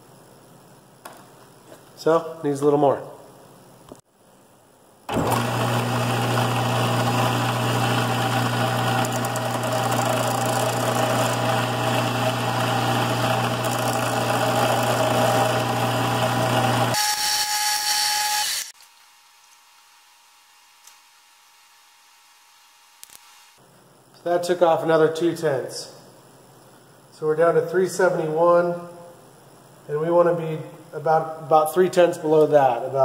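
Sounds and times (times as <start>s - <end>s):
belt sander motor hum: 5.1s - 17.0s
metal grinding against sanding belt: 8.3s - 17.0s.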